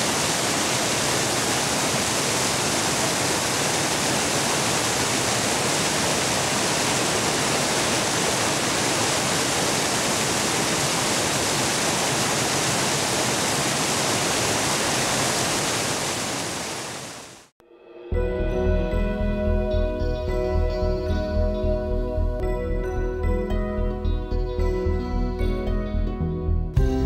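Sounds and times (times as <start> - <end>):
river water flowing over stones: 0.0 - 17.5.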